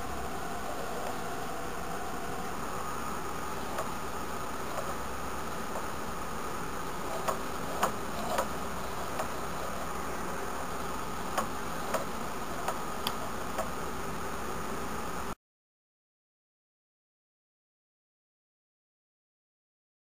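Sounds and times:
steady background hiss: 0.0 - 15.4.

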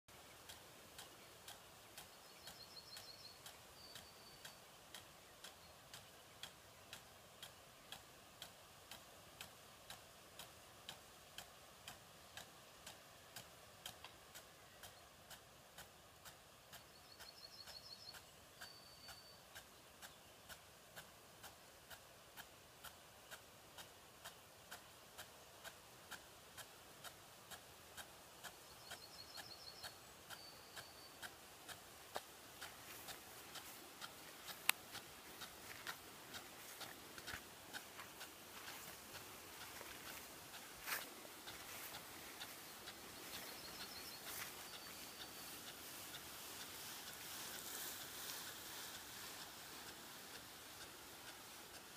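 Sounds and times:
small bird singing: 0.1 - 8.5, 16.6 - 20.7, 28.0 - 50.1
sprinkler ticking: 0.1 - 51.9
water spray hiss: 0.2 - 51.9.

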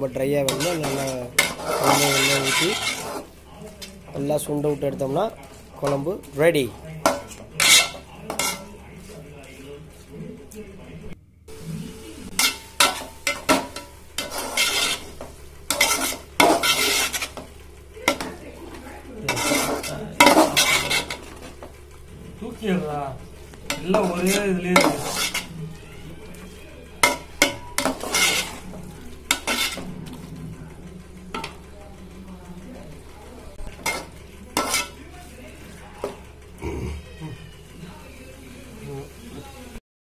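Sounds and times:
spatula scraping metal pot: 0.4 - 3.4, 7.1 - 8.8, 12.3 - 18.4, 19.2 - 21.7, 22.6 - 30.3, 33.6 - 36.2
masala sizzling in oil: 0.4 - 9.2, 11.5 - 30.3, 32.9 - 36.5.

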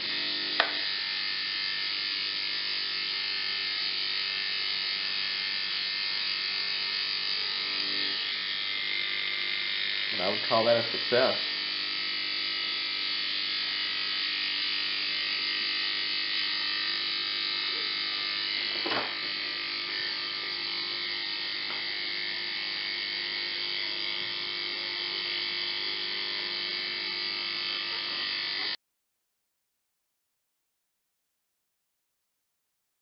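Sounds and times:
electric motor buzzing: 0.0 - 28.8
motor knocking on rag: 0.6 - 0.9, 18.7 - 19.4.

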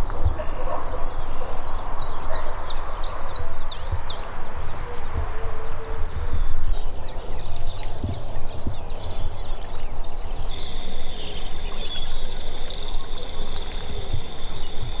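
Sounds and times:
wind buffeting microphone: 0.0 - 15.0
small birds chirping: 1.1 - 15.0
thin steady high note: 10.5 - 15.0.

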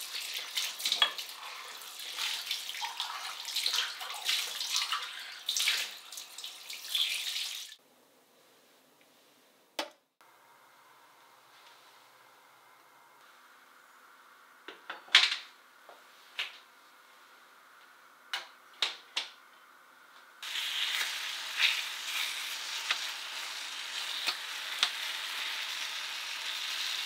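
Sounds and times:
fruit sizzling in a wok: 20.4 - 27.0.

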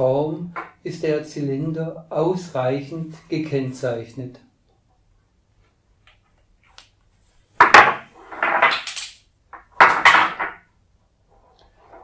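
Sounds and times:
wooden beads clacking: 7.6 - 10.7.

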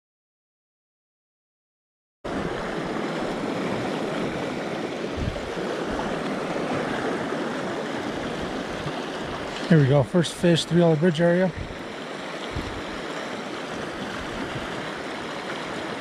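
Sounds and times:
river water flowing: 2.3 - 16.0
low thump: 5.2 - 5.5.

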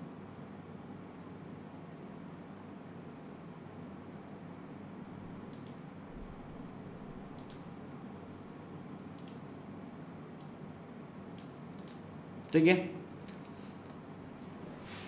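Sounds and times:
low hum: 4.8 - 8.6
computer mouse clicking: 5.4 - 5.9, 7.2 - 7.8, 9.2 - 9.5, 10.4 - 10.6, 11.4 - 12.1.

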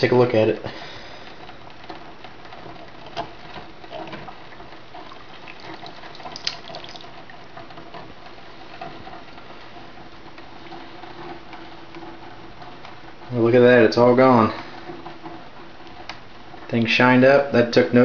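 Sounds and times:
liquid sloshing and dripping: 1.2 - 12.9.

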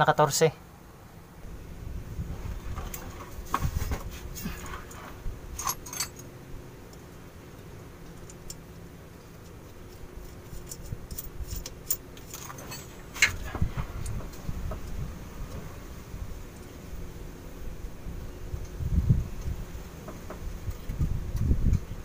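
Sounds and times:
metal bolts clicking and clinking: 5.6 - 6.3, 9.3 - 14.2.

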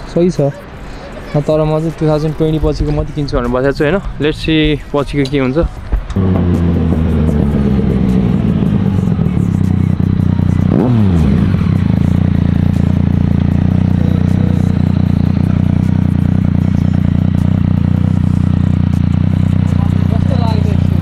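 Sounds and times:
motorcycle engine: 6.1 - 21.0.

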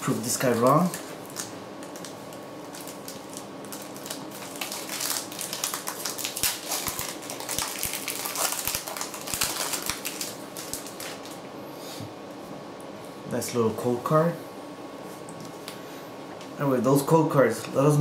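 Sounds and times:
foil wrapper crinkling: 0.1 - 11.4.

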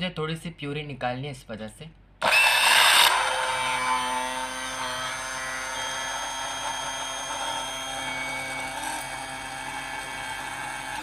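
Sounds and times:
hand blender motor whine: 2.2 - 11.0.

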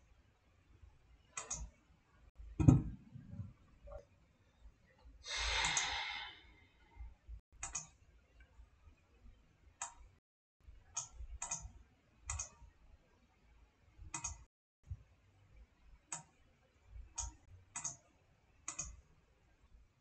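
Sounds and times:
computer mouse clicks: 1.4 - 1.7, 5.6 - 5.9, 7.6 - 8.0, 11.0 - 11.7, 12.3 - 12.6, 14.1 - 14.5, 16.1 - 16.4, 17.2 - 19.0
person sighing: 5.3 - 6.6.

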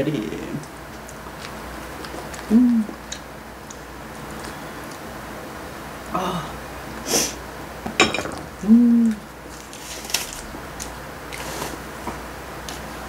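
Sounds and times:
woman's wordless vocal sounds: 2.5 - 3.0, 6.1 - 6.6.

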